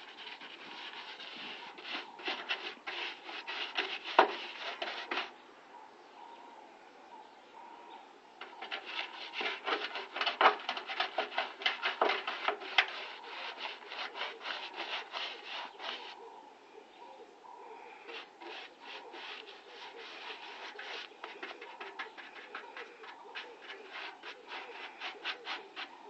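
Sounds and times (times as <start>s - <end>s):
rubbing strokes against a surface: 0.0s - 5.4s, 8.4s - 16.2s, 18.0s - 26.0s.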